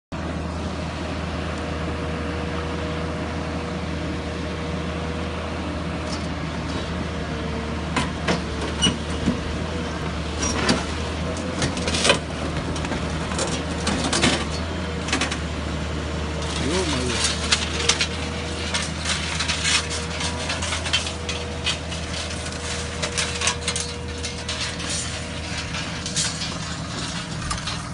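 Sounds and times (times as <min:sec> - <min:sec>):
excavator diesel engine running: 0:00.2 - 0:27.9.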